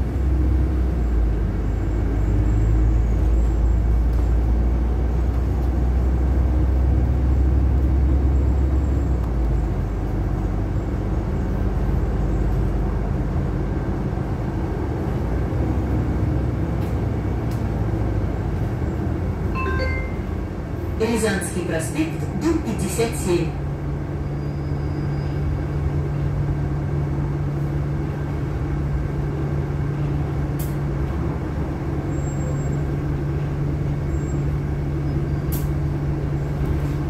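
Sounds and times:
bus engine drone: 0:00.0 - 0:37.0
road and tyre noise: 0:00.0 - 0:37.0.

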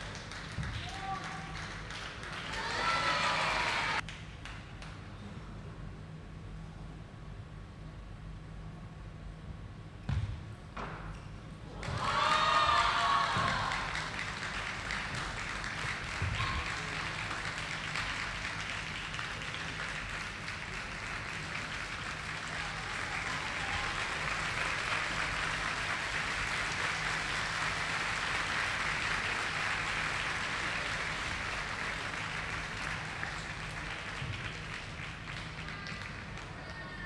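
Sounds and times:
crowd applauding: 0:00.0 - 0:04.1, 0:11.8 - 0:36.9.

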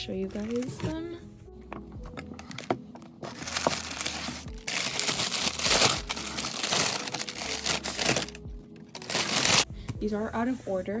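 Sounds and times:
packing material crinkling: 0:02.0 - 0:09.7.

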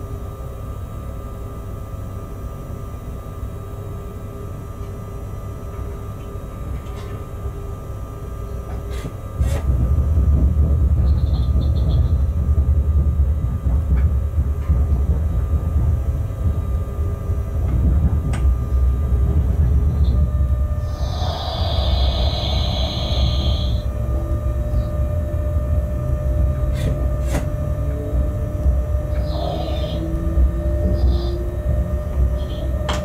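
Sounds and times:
locomotive cab rumble: 0:00.0 - 0:33.0.

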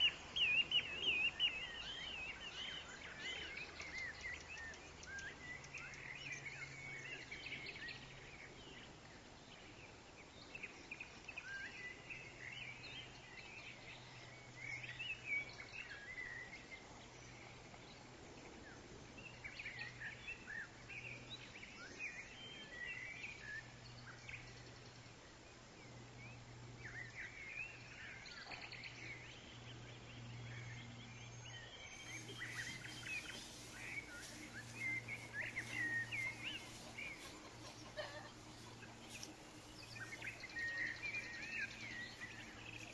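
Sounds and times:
songbirds chirping: 0:00.0 - 0:42.9
low hum: 0:23.7 - 0:42.9.

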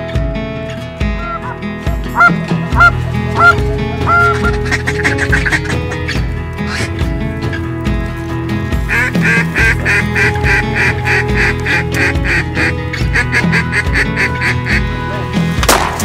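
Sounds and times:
background music with beat: 0:00.0 - 0:16.0
duck quacking: 0:01.2 - 0:01.6, 0:02.2 - 0:07.0, 0:08.9 - 0:14.9.

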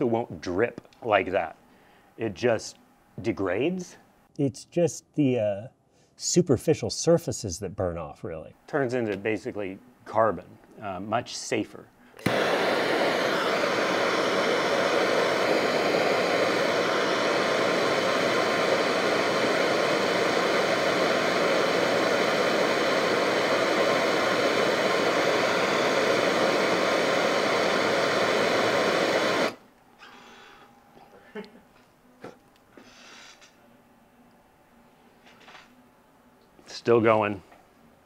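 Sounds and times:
propane torch hissing: 0:12.2 - 0:30.4.

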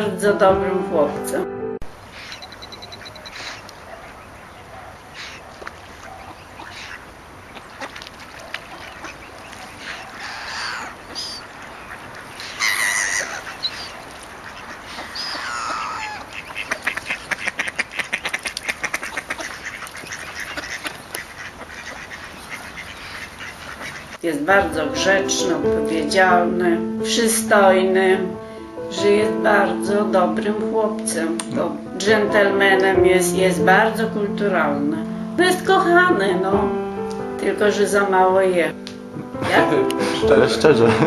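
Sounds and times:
gulls calling: 0:01.9 - 0:24.2
ducks quacking: 0:02.0 - 0:24.2.

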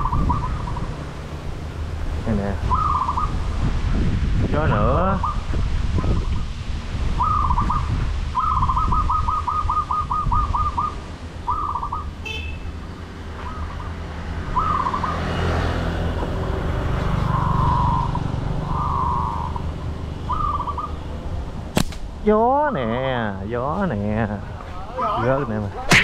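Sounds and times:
bird calling: 0:00.0 - 0:01.0, 0:02.3 - 0:03.4, 0:05.1 - 0:05.5, 0:07.2 - 0:15.7, 0:17.0 - 0:21.3
wind buffeting microphone: 0:00.0 - 0:12.3
sharp click: 0:21.8 - 0:22.1.

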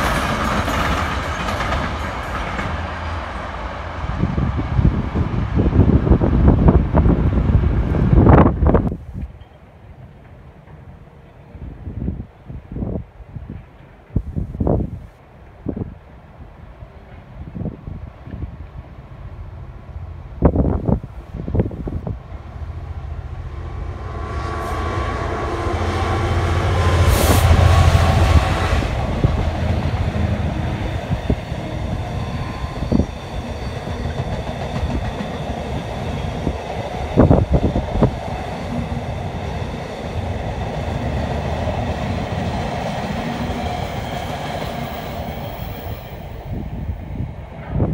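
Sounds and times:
locomotive engine passing: 0:21.4 - 0:47.7
freight wagons rumbling past: 0:21.9 - 0:47.9.

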